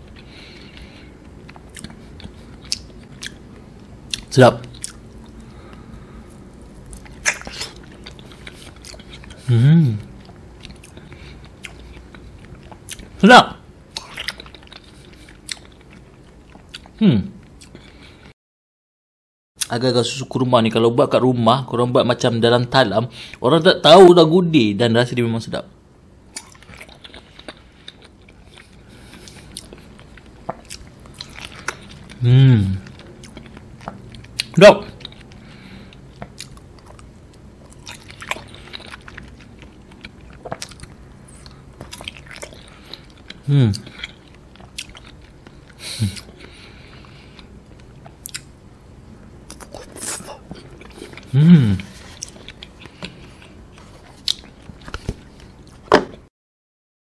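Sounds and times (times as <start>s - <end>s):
person chewing jelly: 0.0s - 13.2s, 13.9s - 18.2s, 26.3s - 48.6s, 49.4s - 55.9s
wet mouth clicks: 7.0s - 7.8s.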